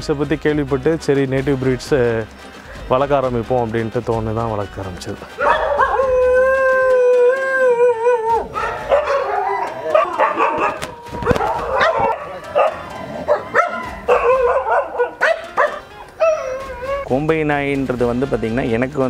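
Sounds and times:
dogs barking and yelping: 0:05.3 - 0:17.1
dog howling: 0:05.4 - 0:17.1.

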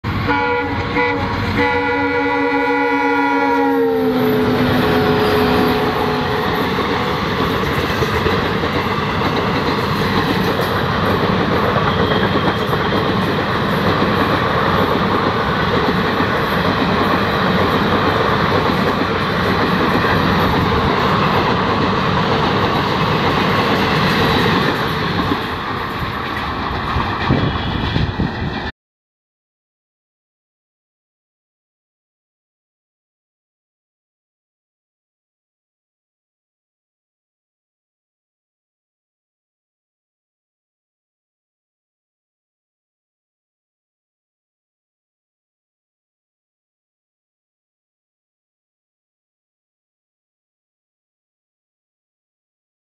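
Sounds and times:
train rushing and wheels clattering: 0:00.0 - 0:28.7
train horn chord: 0:00.2 - 0:07.2.

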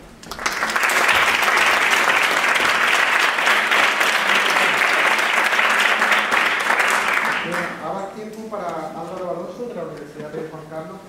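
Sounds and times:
audience applauding: 0:00.2 - 0:07.8.

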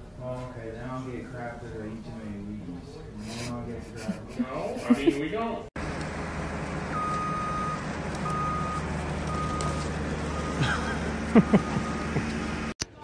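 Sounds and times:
engine low rumble: 0:05.8 - 0:13.0
reversing alarm beeping: 0:06.9 - 0:12.2.

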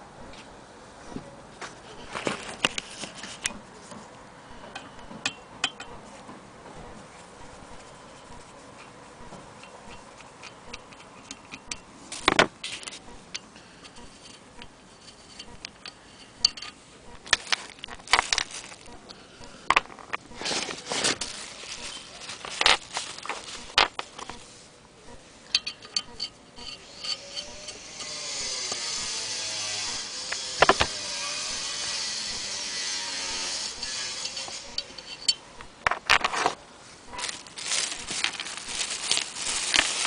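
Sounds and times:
screwdriver clicking on metal wheel: 0:09.6 - 0:11.9, 0:25.5 - 0:29.1, 0:33.7 - 0:35.4.

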